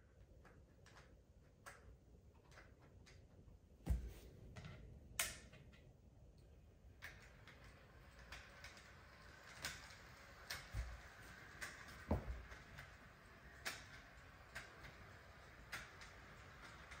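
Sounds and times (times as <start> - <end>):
model train clicks and knocks: 7.0 - 17.0
model locomotive whirring: 7.1 - 17.0.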